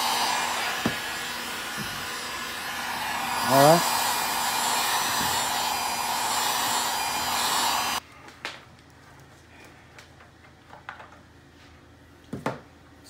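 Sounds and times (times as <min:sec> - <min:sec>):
hot-air blower running: 0:00.0 - 0:08.0.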